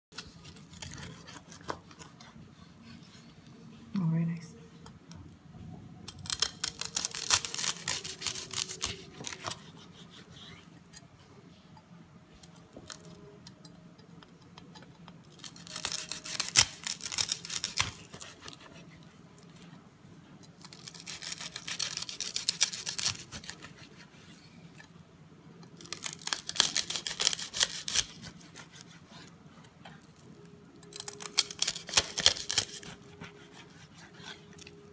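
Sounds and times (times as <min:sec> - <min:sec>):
knife crunching through crackling: 0:00.1 - 0:03.3, 0:06.1 - 0:11.0, 0:15.3 - 0:19.7, 0:20.4 - 0:24.1, 0:25.6 - 0:29.3, 0:29.9 - 0:34.9.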